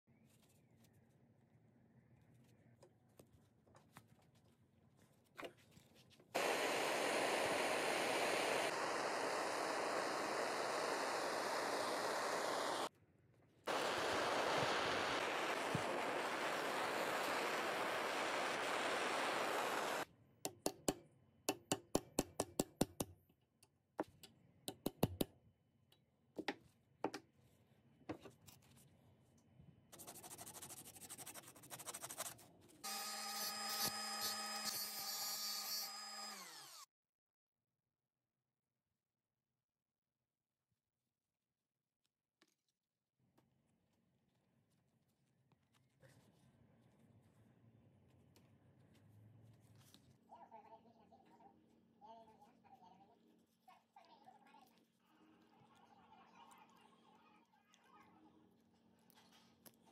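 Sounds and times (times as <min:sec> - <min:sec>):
loud steady hissing: 0:06.4 - 0:12.9, 0:13.7 - 0:20.0.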